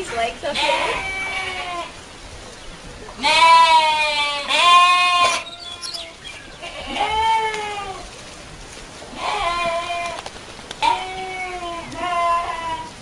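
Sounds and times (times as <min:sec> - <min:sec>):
goat kids bleating: 0:00.4 - 0:02.0, 0:03.2 - 0:08.1, 0:09.1 - 0:10.2, 0:10.8 - 0:13.0.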